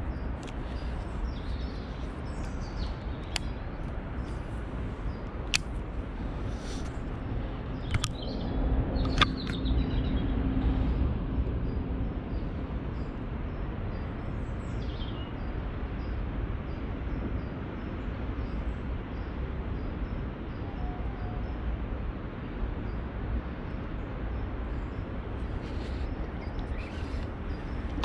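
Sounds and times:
low rumble: 0:00.0 - 0:14.5
sharp clicks: 0:02.4 - 0:03.6, 0:05.4 - 0:05.8, 0:07.8 - 0:08.3, 0:09.0 - 0:09.6.

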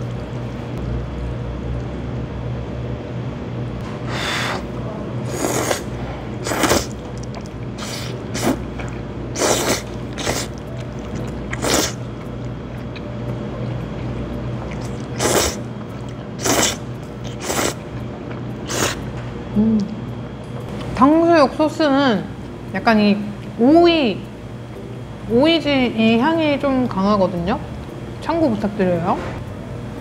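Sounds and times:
noodles being slurped: 0:05.3 - 0:08.6, 0:09.4 - 0:12.0, 0:14.7 - 0:15.6, 0:16.4 - 0:17.9.

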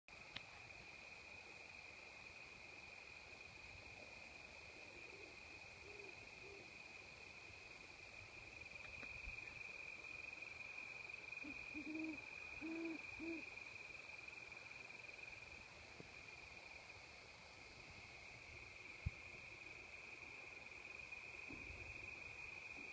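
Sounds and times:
crickets chirping: 0:00.1 - 0:22.9
owl hooting: 0:04.8 - 0:06.8, 0:11.4 - 0:13.6.

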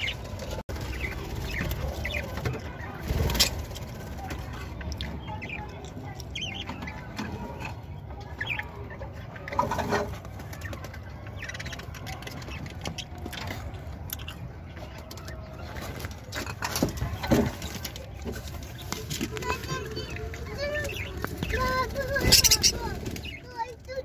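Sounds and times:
budgerigars chirping: 0:19.5 - 0:23.4.

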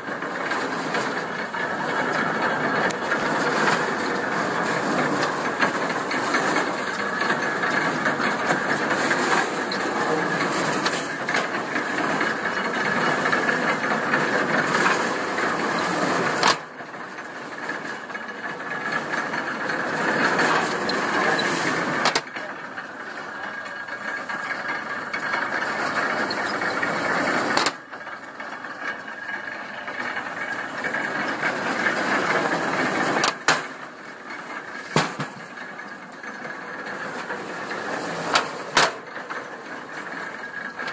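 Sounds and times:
hay baler clattering: 0:00.0 - 0:40.9
sharp baler knock: 0:34.9 - 0:35.4.

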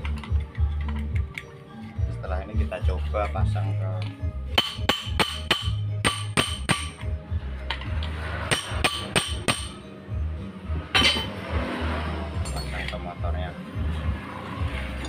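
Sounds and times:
ringing metal-on-metal strikes: 0:04.6 - 0:07.1, 0:08.5 - 0:09.9, 0:12.4 - 0:13.0.

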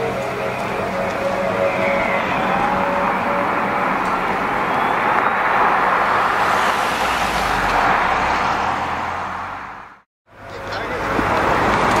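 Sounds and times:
car driving away: 0:00.0 - 0:12.0.

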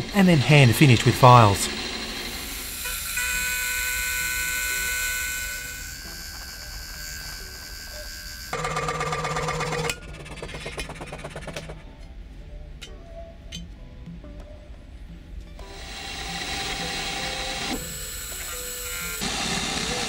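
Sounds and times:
end mill cutting brass whine: 0:00.0 - 0:08.8, 0:15.6 - 0:20.0
scroll saw cutting brass: 0:00.0 - 0:10.8, 0:15.6 - 0:20.0.

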